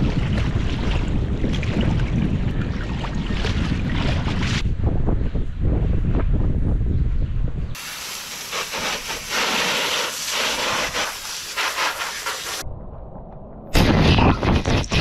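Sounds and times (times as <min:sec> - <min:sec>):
wind on microphone: 0:00.0 - 0:07.8, 0:10.2 - 0:15.0
garden hose spraying water: 0:07.8 - 0:12.6.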